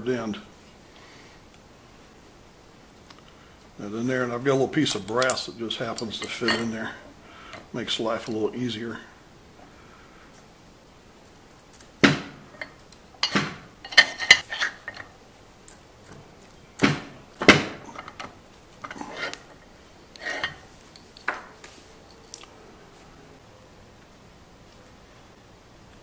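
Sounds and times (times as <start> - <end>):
metal clinks and knocks: 12.0 - 15.1.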